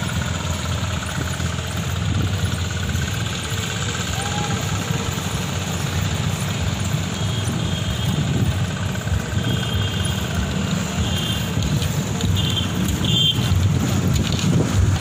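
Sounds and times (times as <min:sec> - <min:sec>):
road traffic noise: 0:00.0 - 0:15.0
wind rumbling on microphone: 0:06.7 - 0:09.4, 0:11.4 - 0:15.0.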